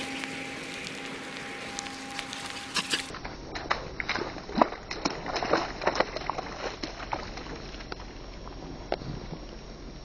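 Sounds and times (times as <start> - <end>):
footsteps in wet grass: 0.0 - 8.8
faint hiss and hum: 0.0 - 10.0.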